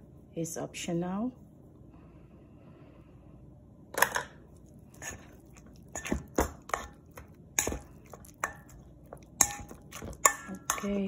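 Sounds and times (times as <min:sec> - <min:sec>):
spoon scraping metal bowl: 0:04.9 - 0:11.0.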